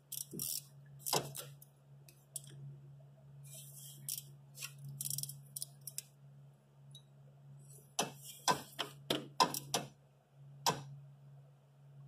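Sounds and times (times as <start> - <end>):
metallic clicks and scrapes: 0.0 - 1.6, 3.5 - 6.1
steady low hum: 0.0 - 12.0.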